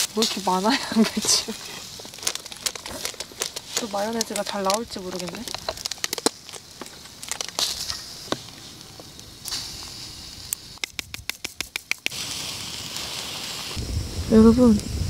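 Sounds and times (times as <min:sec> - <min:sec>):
soft hiss: 0:00.0 - 0:15.0
seasoning bottle shaken clicking: 0:10.7 - 0:12.2.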